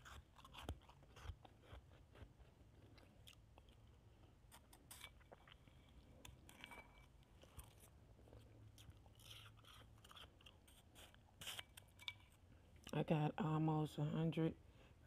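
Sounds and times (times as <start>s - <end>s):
shaved ice being chewed: 0.0s - 13.0s
spoon scooping ice from bowl: 11.4s - 12.4s.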